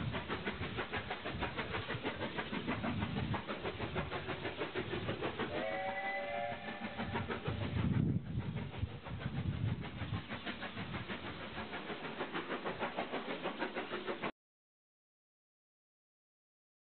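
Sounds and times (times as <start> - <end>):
steam locomotive exhaust beats: 0.0 - 14.3
chime steam whistle: 5.5 - 7.2.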